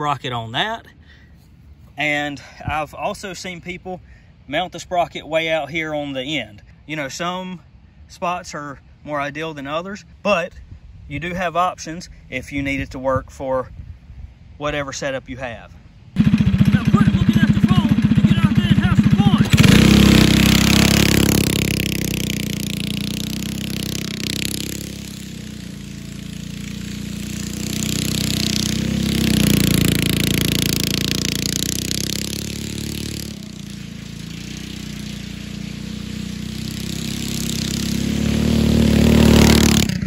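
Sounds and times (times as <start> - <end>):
go-kart engine driving by: 16.2 - 40.0.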